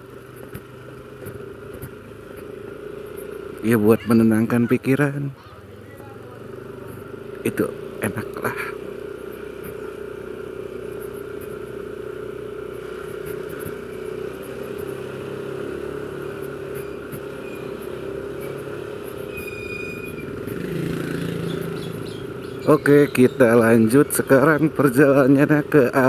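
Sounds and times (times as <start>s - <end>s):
scooter engine running: 0.0s - 26.0s
high whistle-like tone: 19.3s - 20.2s.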